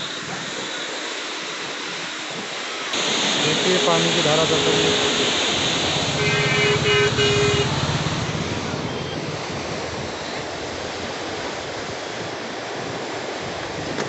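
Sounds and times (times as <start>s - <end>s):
water rushing through sluice gates: 0.0s - 14.0s
horn beeps: 3.5s - 5.4s, 6.1s - 8.0s, 8.7s - 9.4s.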